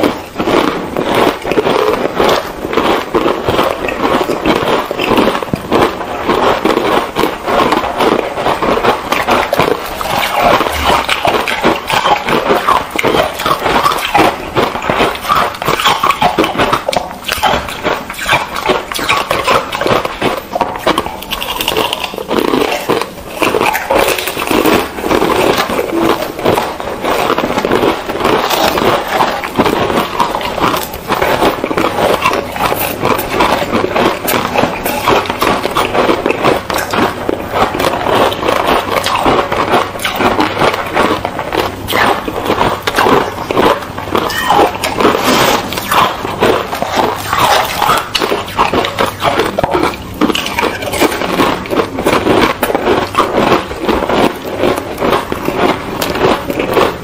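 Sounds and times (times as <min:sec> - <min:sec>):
crunching and chewing ice: 0:00.0 - 0:57.0.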